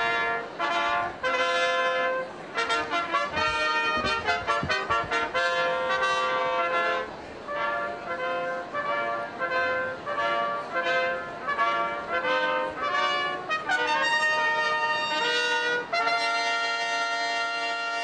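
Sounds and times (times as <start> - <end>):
trumpet playing brass music: 0.0 - 18.0.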